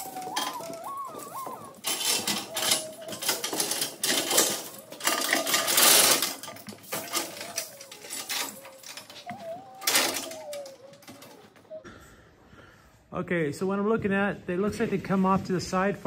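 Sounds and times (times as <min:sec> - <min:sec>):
wavering whistle-like tone: 0:00.0 - 0:05.6, 0:07.0 - 0:11.9
steel chain rattling: 0:00.0 - 0:11.5.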